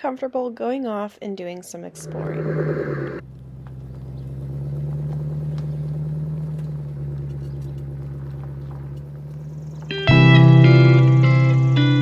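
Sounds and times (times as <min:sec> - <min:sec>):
pickup truck engine humming: 0:02.0 - 0:12.0.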